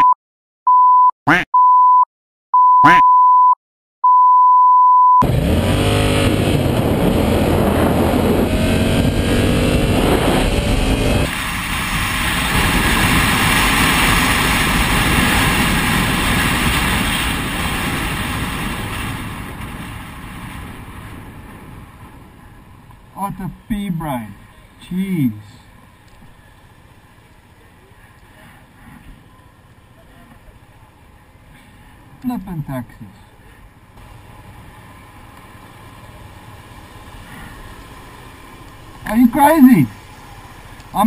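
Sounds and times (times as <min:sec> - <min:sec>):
censor bleep: 0:00.0 - 0:05.2
motorcycle engine revving: 0:05.2 - 0:19.6
wind rushing: 0:05.2 - 0:22.5.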